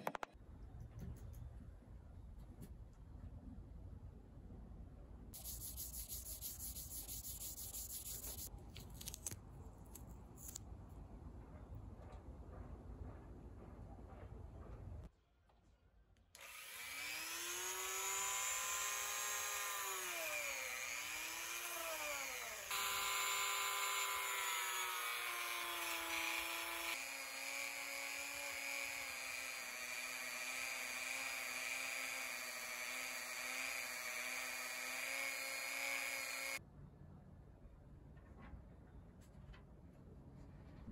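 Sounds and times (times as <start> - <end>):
rotary tool motor whine: 16.4 - 36.6.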